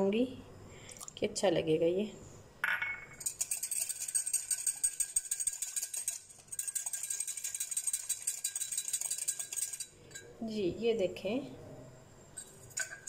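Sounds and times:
plunger whisk ratcheting clatter: 3.2s - 10.2s.

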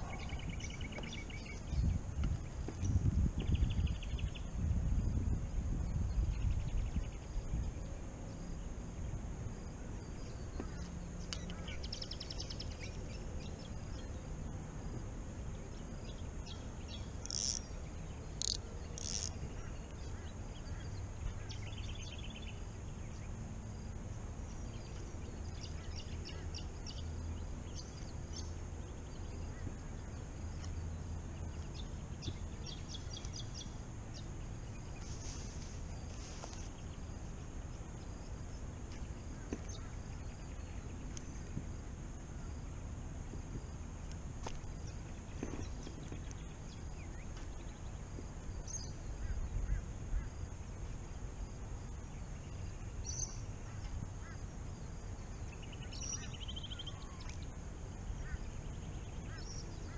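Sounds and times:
high insect hum: 0.0s - 59.9s
high chirping calls: 16.5s - 19.7s.

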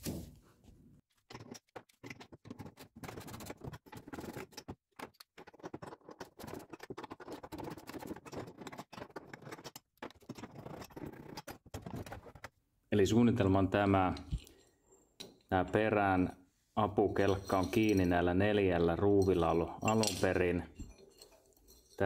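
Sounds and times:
metal clinking on metal: 17.2s - 18.3s, 19.0s - 22.0s.

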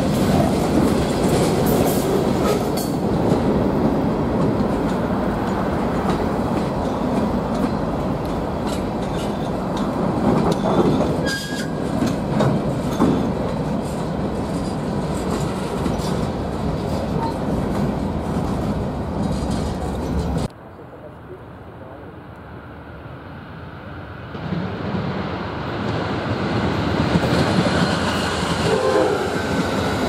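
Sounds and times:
train wheels rumbling on rail: 0.0s - 20.6s, 21.8s - 30.0s
wheel squeal: 10.6s - 11.8s.

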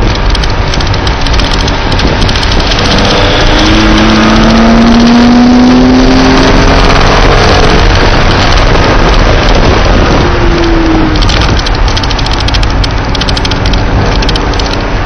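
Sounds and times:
car engine: 0.0s - 15.0s
road noise: 0.0s - 15.0s
wind noise: 0.0s - 15.0s.

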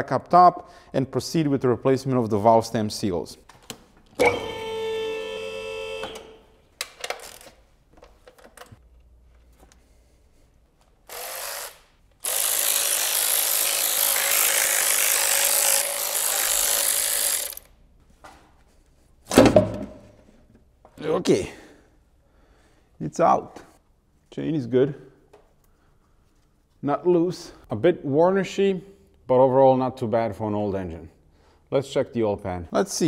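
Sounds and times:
electric ratchet spinning bolts: 11.0s - 17.7s.

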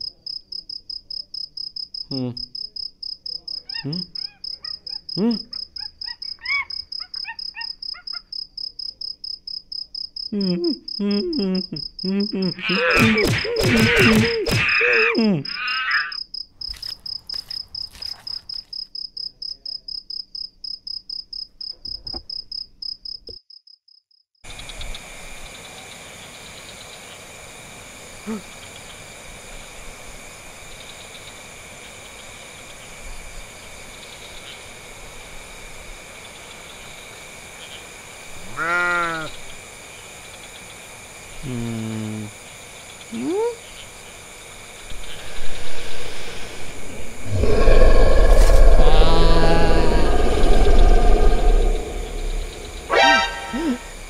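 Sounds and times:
crickets chirping: 0.0s - 41.5s, 42.1s - 54.0s
steady hiss: 24.5s - 54.0s
pitch-bending calls: 44.9s - 54.0s.

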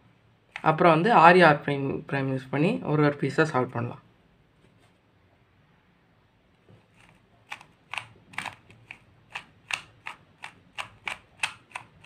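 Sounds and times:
puzzle cube clicking: 6.9s - 12.0s.

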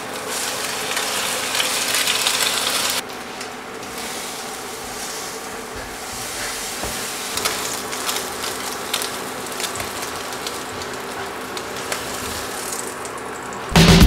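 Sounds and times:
bread sizzling in a frying pan: 0.0s - 13.7s
crackles and pops: 7.3s - 13.7s.

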